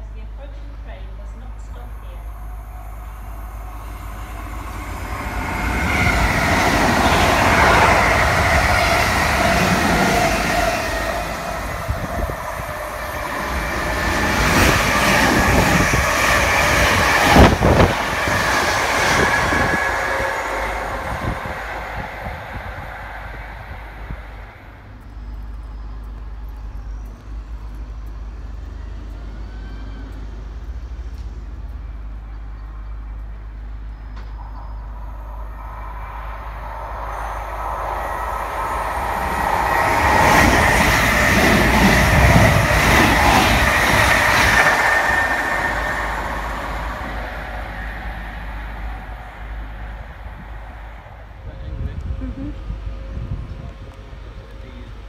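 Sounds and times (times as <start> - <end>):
electric train motor whine: 1.6 - 31.9, 34.2 - 52.1.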